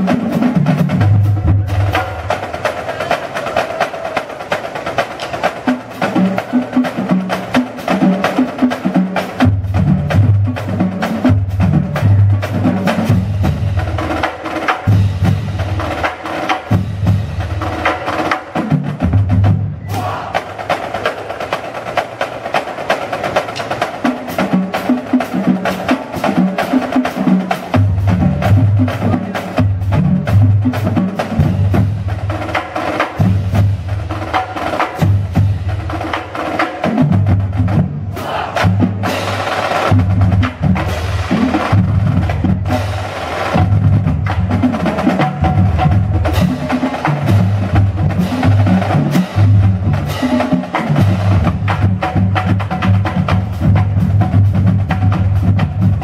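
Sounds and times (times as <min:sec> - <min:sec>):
bass drums: 0:00.0 - 0:03.0, 0:06.0 - 0:20.3, 0:27.2 - 0:56.0
snare drums: 0:00.0 - 0:56.0
tenor drums: 0:00.0 - 0:56.0.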